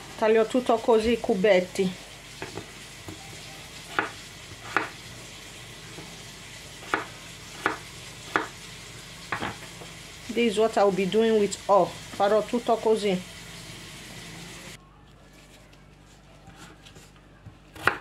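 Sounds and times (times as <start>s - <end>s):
knife chopping on cutting board: 3.9s - 5.0s, 6.8s - 8.6s, 17.8s - 18.0s.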